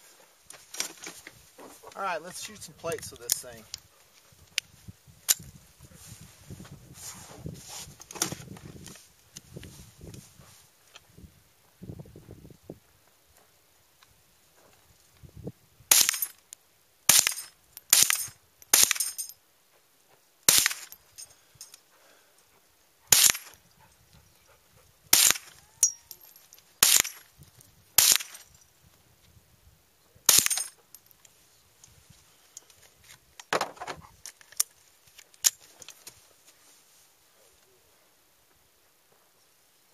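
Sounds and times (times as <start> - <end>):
rifle shots: 15.9 - 16.3, 17.1 - 19.2, 20.5 - 21.0, 23.1 - 23.6, 25.1 - 25.5, 26.8 - 27.2, 28.0 - 28.4, 30.3 - 30.7.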